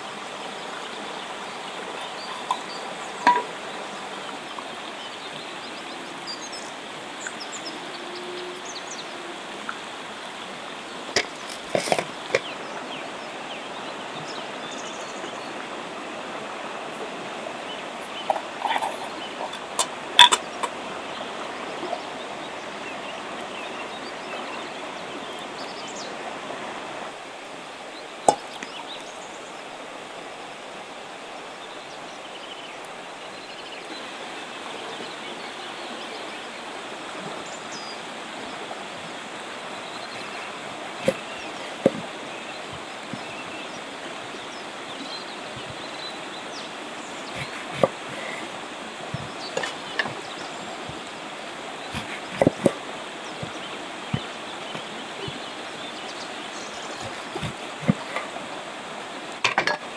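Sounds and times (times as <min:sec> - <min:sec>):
river water running: 0:00.0 - 0:59.9.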